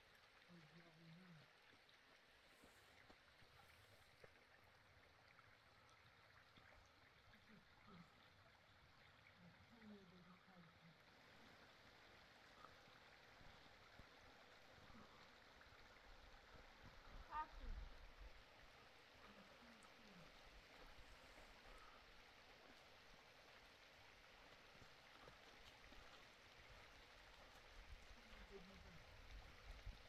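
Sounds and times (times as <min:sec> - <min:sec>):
faint outdoor hiss: 0:00.0 - 0:30.0
faint voice-like sounds: 0:00.4 - 0:01.8, 0:05.6 - 0:22.8, 0:28.0 - 0:30.0.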